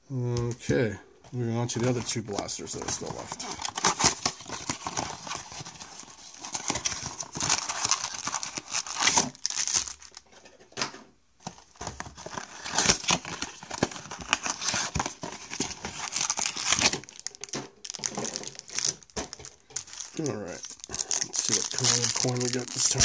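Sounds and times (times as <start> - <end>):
foil packs crinkling: 1.8 - 10.3, 11.5 - 23.0
cardboard boxes tearing: 3.0 - 10.0.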